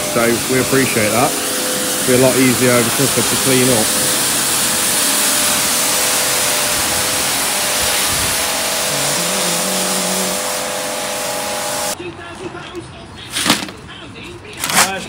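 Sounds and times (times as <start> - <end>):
pressure washer spraying tarmac: 0.0 - 12.0
steady hum: 0.0 - 12.0.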